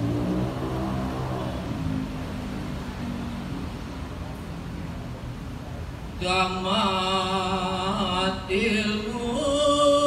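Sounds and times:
man chanting: 6.2 - 10.0.

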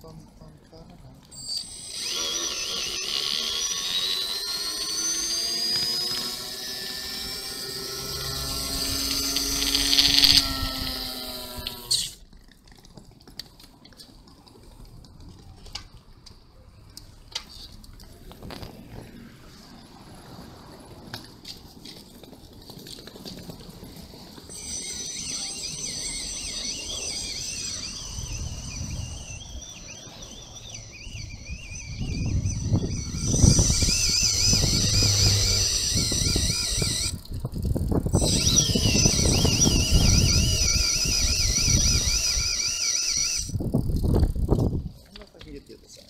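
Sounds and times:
electric motor whining: 1.4 - 12.2, 24.4 - 44.8
low riding rumble: 25.5 - 42.5.

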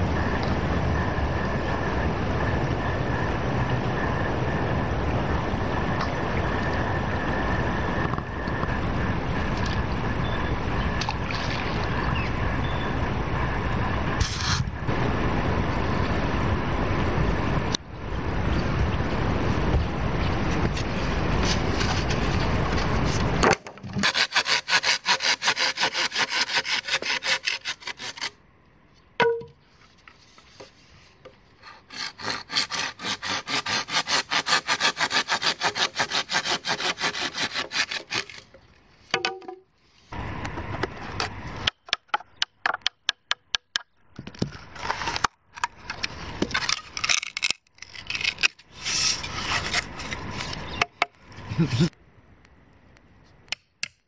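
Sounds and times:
steady rushing noise: 0.0 - 23.4
blade knocking and scraping bamboo: 20.5 - 28.4, 29.2 - 39.7, 40.4 - 51.2
hand saw cutting bamboo: 24.0 - 28.4, 31.6 - 38.6, 46.6 - 50.6.

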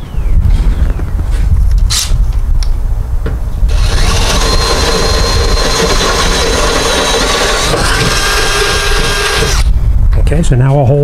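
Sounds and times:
electric drill whining: 3.7 - 9.7.

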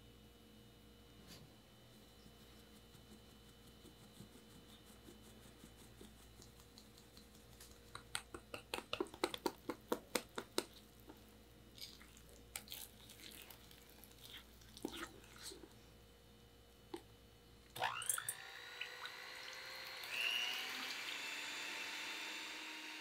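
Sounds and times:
wet batter stirring: 2.3 - 15.8.

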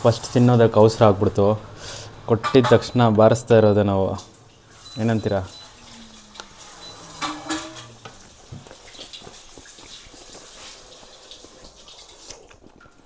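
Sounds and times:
wet chewing: 8.0 - 13.0.

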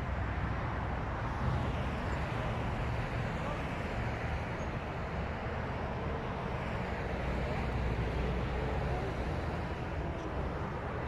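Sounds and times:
deep traffic rumble: 0.0 - 11.0.

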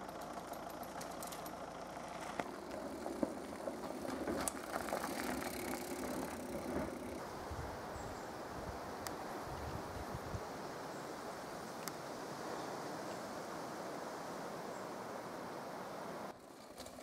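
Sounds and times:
bike clicks and rattles: 0.0 - 7.2, 16.4 - 17.0
tyres crunching on gravel: 0.0 - 7.2.

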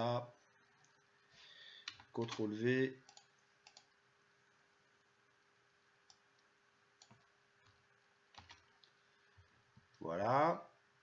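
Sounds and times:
faint steady hum: 0.0 - 11.0
computer mouse clicks: 1.8 - 4.0, 6.0 - 9.9.

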